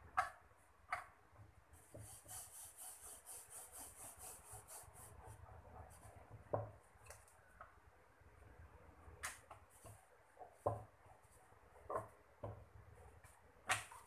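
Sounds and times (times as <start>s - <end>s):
hand rubbing dough on metal: 1.8s - 6.3s.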